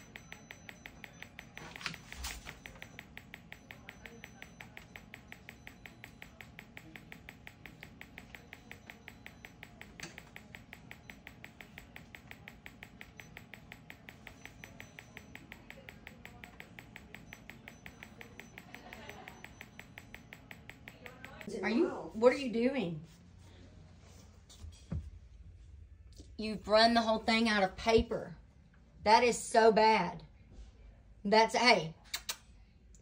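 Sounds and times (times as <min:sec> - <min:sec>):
therapy machine clicking: 0:00.0 - 0:21.5.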